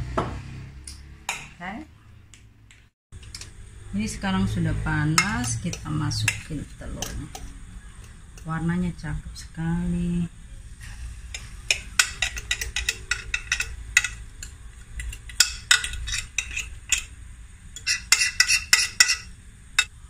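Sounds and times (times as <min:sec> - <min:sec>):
spoon scraping a glass dish: 0:11.3 - 0:17.1, 0:17.8 - 0:19.9.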